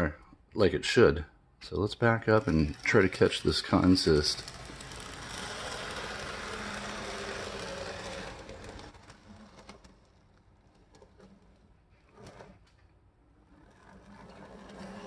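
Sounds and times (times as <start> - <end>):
toy train motor whirring: 2.3 - 11.6.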